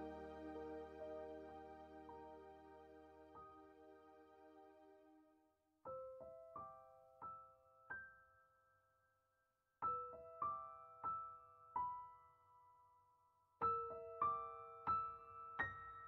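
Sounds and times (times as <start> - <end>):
slow piano notes: 0.0 - 5.0.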